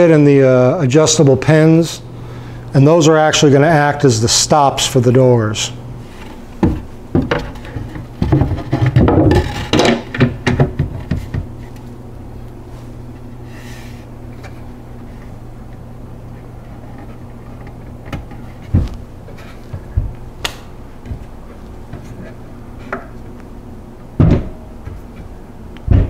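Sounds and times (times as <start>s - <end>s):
steady low hum: 0.0s - 26.0s
shelf knocking and scraping: 6.6s - 11.5s, 18.0s - 20.2s, 24.2s - 25.3s
cabinet doors knocking shut: 24.2s - 24.6s.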